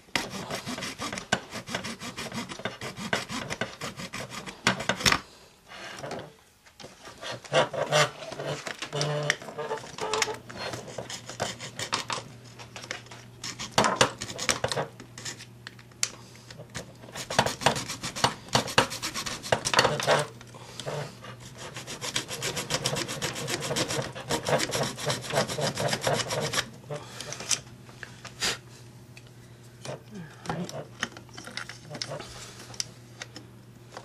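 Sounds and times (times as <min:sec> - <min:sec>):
hacksaw blade sawing plastic: 0:00.1 - 0:05.1, 0:07.0 - 0:09.3, 0:10.0 - 0:12.2, 0:13.4 - 0:14.8, 0:16.8 - 0:20.3, 0:20.9 - 0:26.7.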